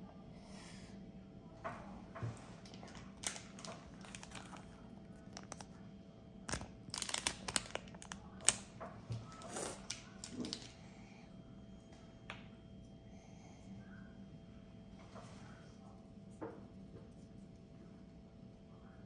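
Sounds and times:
plastic package crinkling and clicking: 0:02.6 - 0:05.7, 0:06.5 - 0:08.7, 0:09.3 - 0:10.8.

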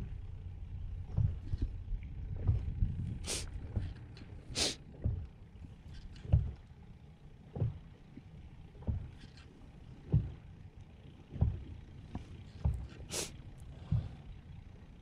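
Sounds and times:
soft knocks of boat: 0:00.0 - 0:14.8
boat engine rumble: 0:00.0 - 0:15.0
short hisses: 0:03.3 - 0:03.5, 0:13.1 - 0:13.3.

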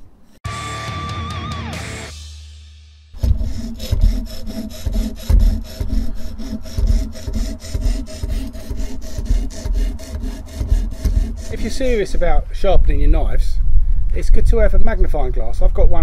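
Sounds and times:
music: 0:00.5 - 0:03.2.

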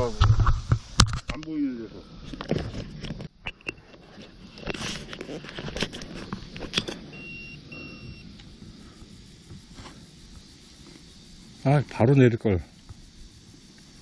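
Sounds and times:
rustling and clicking of lines: 0:02.2 - 0:07.1
short high beeps: 0:07.1 - 0:08.3.

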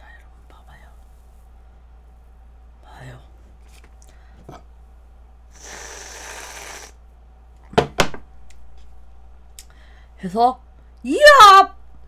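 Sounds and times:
whipped cream can spraying: 0:05.6 - 0:07.0.

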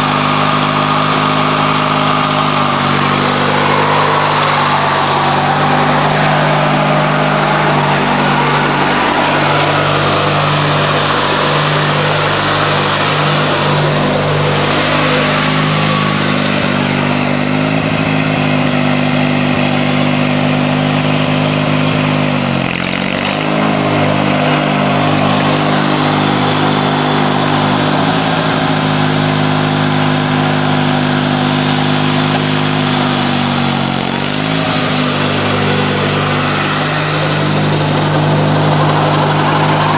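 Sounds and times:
lawn tractor engine running: 0:00.0 - 0:39.9.

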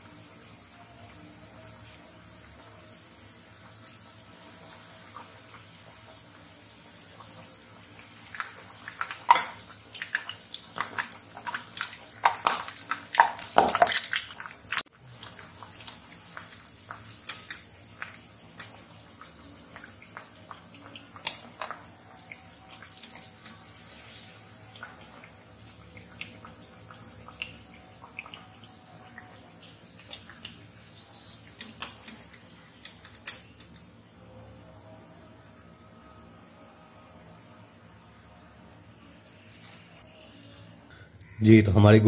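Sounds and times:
oil sizzling and crackling: 0:00.0 - 0:34.2
spattering pops of oil: 0:08.3 - 0:21.9.

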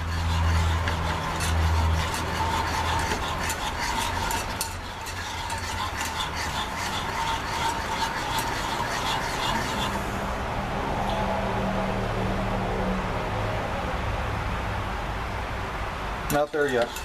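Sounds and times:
whisk clicking against metal pan: 0:00.0 - 0:10.0, 0:16.3 - 0:17.0.

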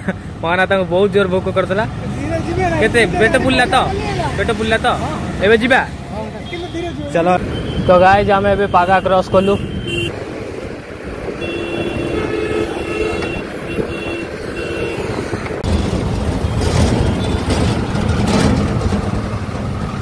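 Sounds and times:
passing vehicle engine and tyres: 0:00.0 - 0:20.0
vehicle electronic beep tones: 0:07.4 - 0:10.1.

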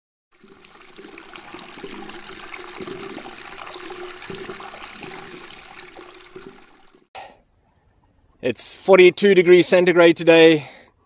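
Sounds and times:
water rushing and splashing: 0:00.4 - 0:07.1.

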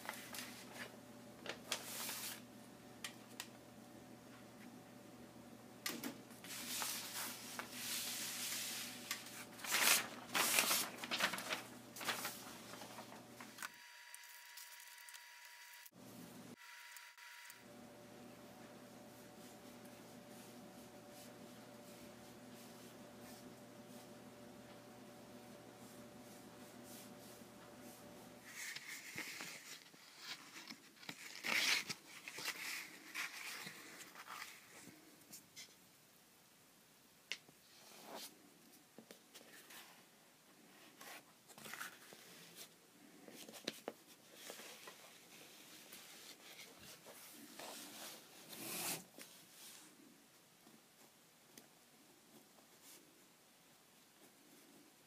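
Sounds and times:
paper rustling and crinkling: 0:00.0 - 0:02.5, 0:05.9 - 0:13.7, 0:26.8 - 0:35.4, 0:40.9 - 0:50.0.

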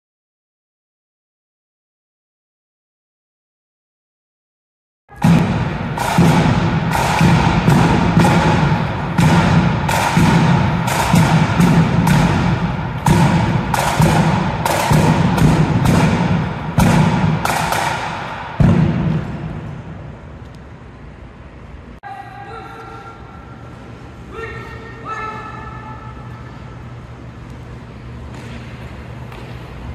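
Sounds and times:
bass drum beating: 0:05.2 - 0:17.5
snare drum beating: 0:05.2 - 0:19.2.

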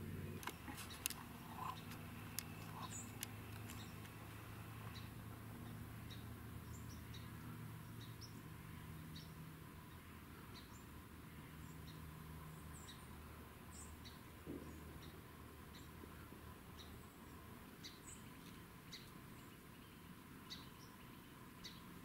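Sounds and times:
low steady hum: 0:00.0 - 0:22.0
small birds chirping: 0:00.2 - 0:22.0
sharp clicks: 0:00.4 - 0:04.2.

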